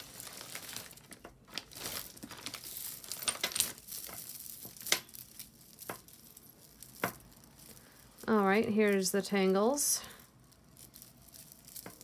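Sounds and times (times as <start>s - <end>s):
jewelry clicking and clinking: 0.1s - 12.0s.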